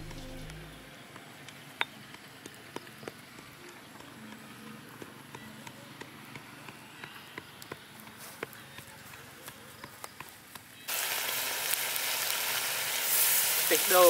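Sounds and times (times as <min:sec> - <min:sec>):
steaming pot sizzling hiss: 0:10.9 - 0:14.0.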